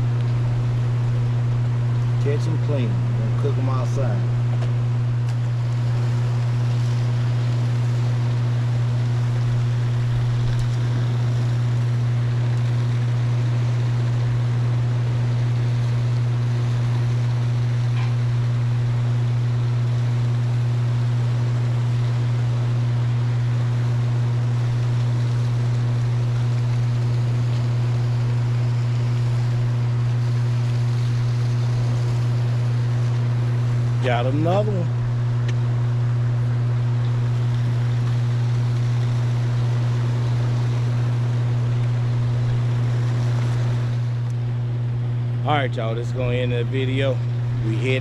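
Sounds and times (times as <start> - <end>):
low hum from dam: 0.0 - 48.0
water rushing: 24.3 - 44.6.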